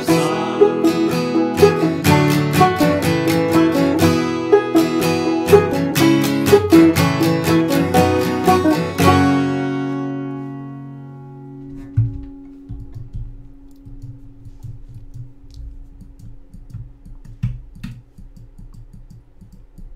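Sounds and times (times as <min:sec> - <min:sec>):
guitar and banjo chord ringing: 0:00.0 - 0:12.4
instruments bumping and clicking: 0:11.8 - 0:19.9.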